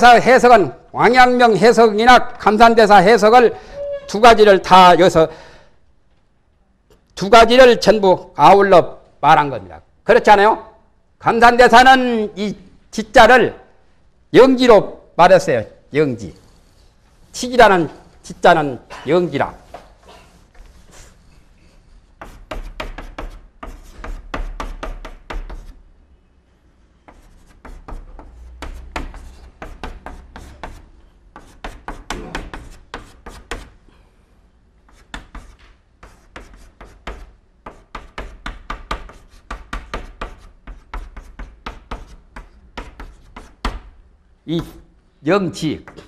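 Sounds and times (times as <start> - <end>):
chalk tapping and scraping: 19.4 - 25.9, 27.0 - 33.8, 34.8 - 44.8.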